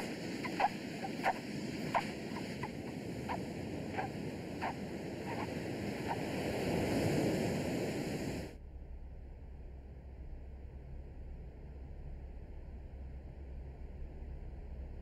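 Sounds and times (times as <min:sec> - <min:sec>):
ocean surf on a beach: 0:00.0 - 0:08.6
faint low hum: 0:08.4 - 0:15.0.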